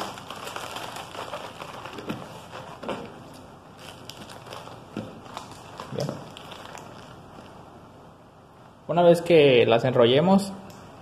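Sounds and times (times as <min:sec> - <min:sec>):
lettuce leaves crinkling: 0:00.0 - 0:07.6.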